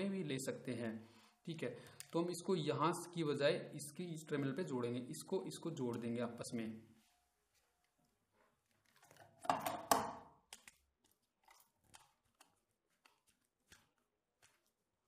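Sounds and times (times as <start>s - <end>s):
plastic rustling crunch: 10.6s - 15.0s.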